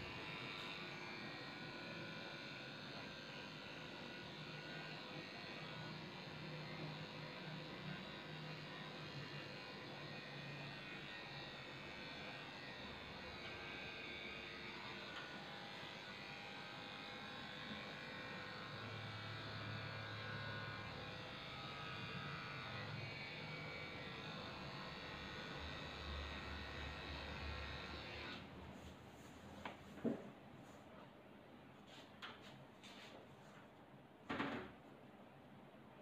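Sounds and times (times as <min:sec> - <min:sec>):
electric clippers running: 0:00.0 - 0:28.5.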